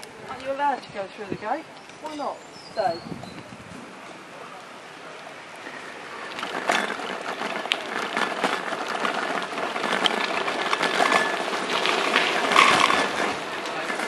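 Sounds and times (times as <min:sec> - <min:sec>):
bicycle rolling over rough tarmac: 0:00.0 - 0:14.0.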